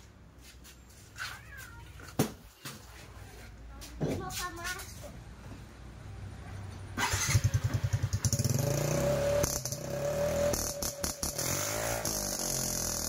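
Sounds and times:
scooter engine starting and idling: 6.9s - 13.0s.

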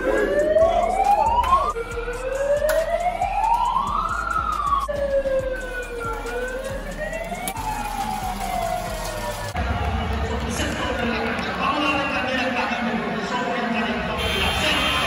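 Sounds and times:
megaphone siren wailing: 0.0s - 9.5s.

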